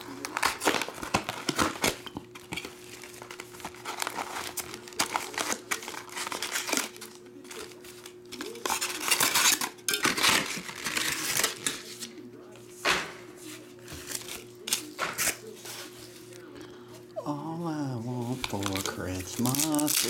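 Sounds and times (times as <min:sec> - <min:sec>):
foil packs crinkling: 0:00.0 - 0:12.2, 0:13.4 - 0:16.5, 0:18.0 - 0:20.0.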